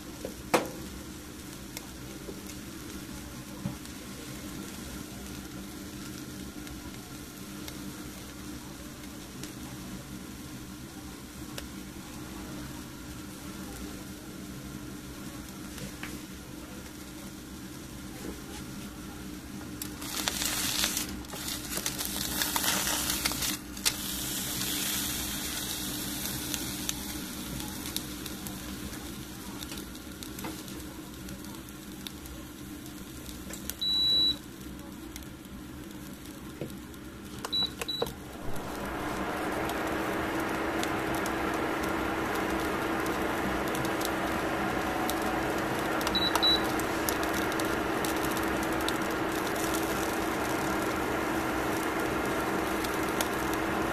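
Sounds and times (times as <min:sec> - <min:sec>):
aluminium foil crinkling: 0:19.8 - 0:27.0
electronic appliance beeps: 0:33.8 - 0:34.5, 0:37.4 - 0:38.2, 0:44.7 - 0:50.3
steady rushing noise: 0:38.2 - 0:53.9.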